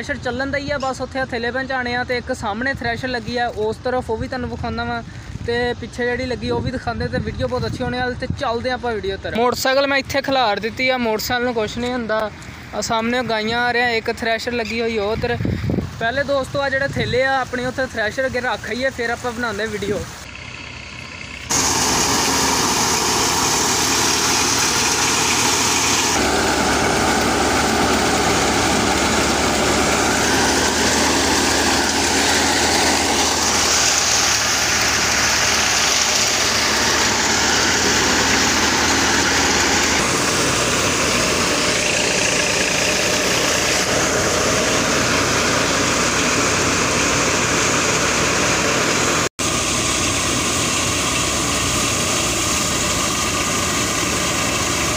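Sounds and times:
tractor engine humming: 0:08.6 - 0:54.9
threshing machine running: 0:19.9 - 0:54.9.

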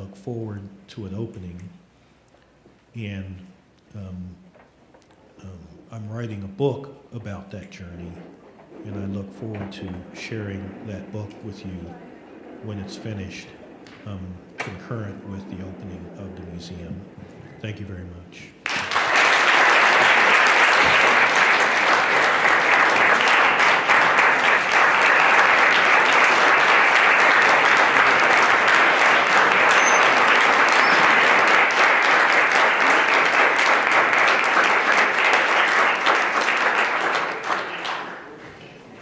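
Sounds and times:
large audience applauding: 0:18.6 - 0:39.0.

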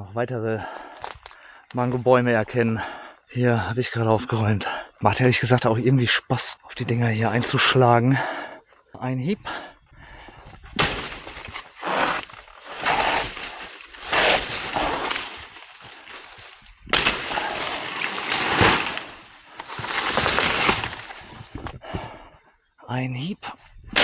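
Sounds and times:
machete chopping plant: 0:10.8 - 0:16.3, 0:16.9 - 0:21.2
dry leaves rustling: 0:10.8 - 0:21.3.

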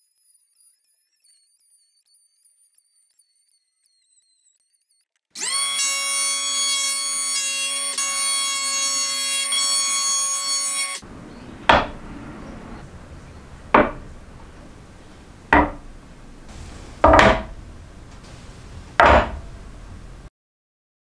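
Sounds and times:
electric hand planer whining: 0:05.4 - 0:20.2
straightedge knocking on wooden board: 0:11.1 - 0:20.2.

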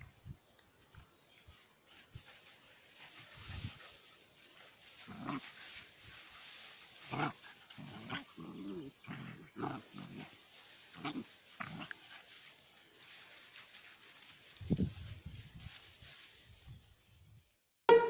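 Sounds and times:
puppies growling and yipping: 0:07.0 - 0:12.1.

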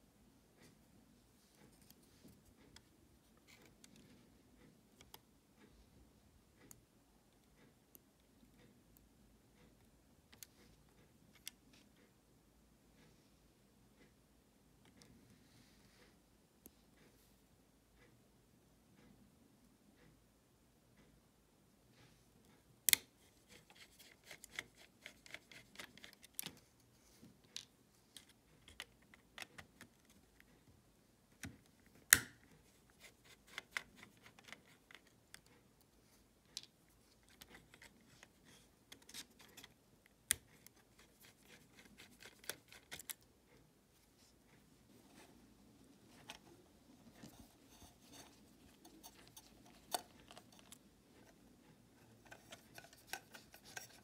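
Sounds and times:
faint clicks and light scrapes: 0:01.4 - 0:05.9, 0:31.4 - 0:54.0.

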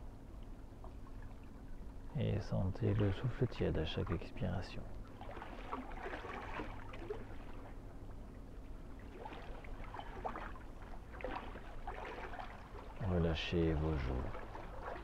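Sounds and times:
low steady rumble: 0:00.0 - 0:15.0
waves lapping against rocks: 0:09.0 - 0:15.0.

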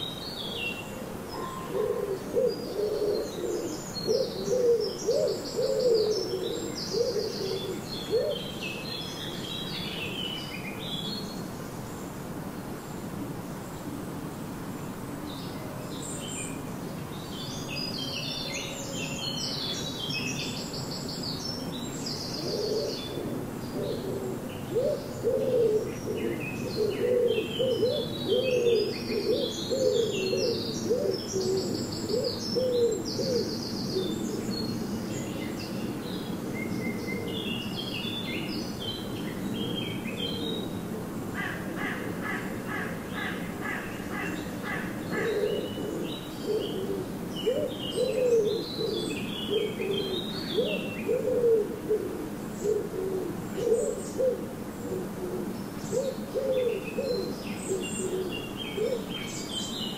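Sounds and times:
songbirds singing: 0:00.0 - 0:59.9
low cooing notes: 0:01.3 - 0:08.4, 0:22.4 - 0:34.3, 0:44.7 - 0:59.1.

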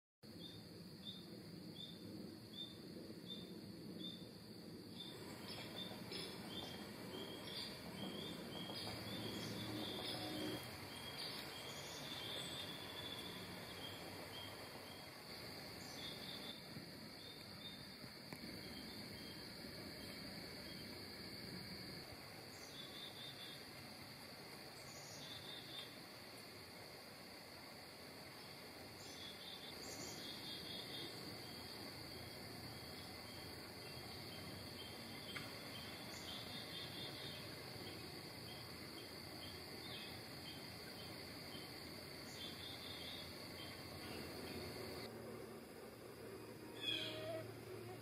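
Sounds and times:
crickets chirping: 0:00.2 - 0:48.0
bird calls: 0:46.8 - 0:48.0.

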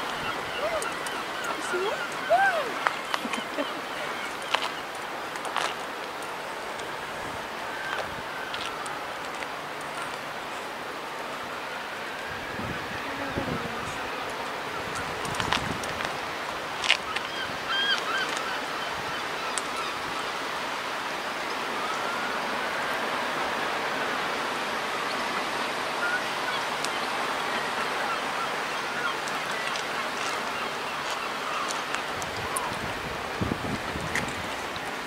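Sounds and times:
faint wavering bird calls: 0:00.0 - 0:05.0, 0:17.0 - 0:20.6, 0:25.6 - 0:32.8
wind hiss: 0:29.3 - 0:35.0.

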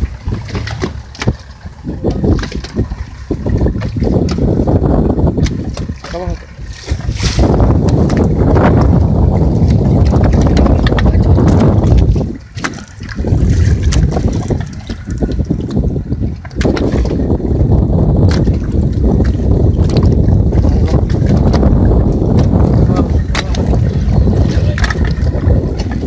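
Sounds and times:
water washing along hull: 0:00.0 - 0:26.0
wind buffeting microphone: 0:00.0 - 0:26.0.

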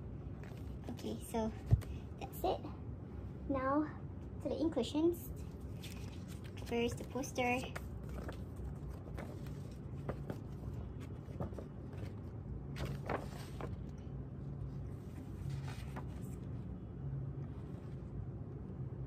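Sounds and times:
steady low hum: 0:00.0 - 0:19.0
paper poster crinkling: 0:05.6 - 0:13.9, 0:15.0 - 0:16.6.

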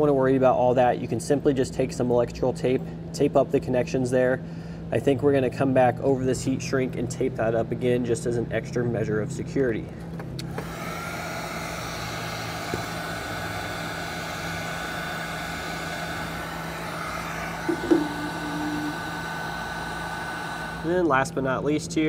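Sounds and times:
heat gun fan whine: 0:06.6 - 0:22.0
brief knock: 0:17.6 - 0:19.0.

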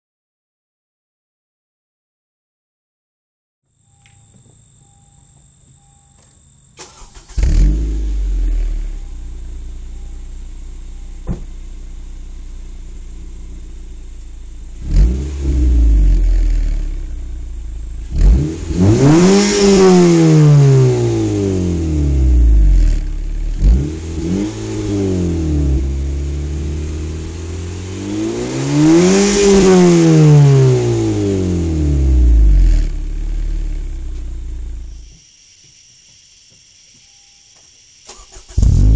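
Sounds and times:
car engine starting and revving: 0:06.8 - 0:35.0, 0:38.1 - 0:38.9.

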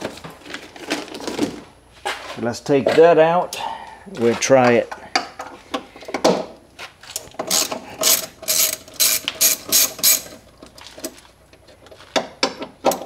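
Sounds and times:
socket ratchet clicking: 0:07.4 - 0:10.4.

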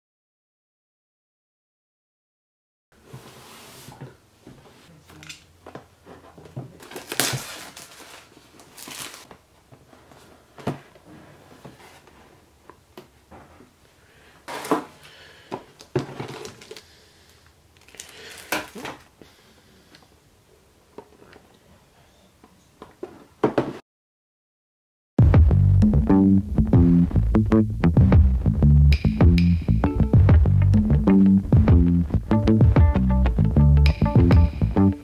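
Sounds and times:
packaging crinkling and rustling: 0:06.6 - 0:09.4, 0:15.8 - 0:16.8, 0:17.8 - 0:19.1.

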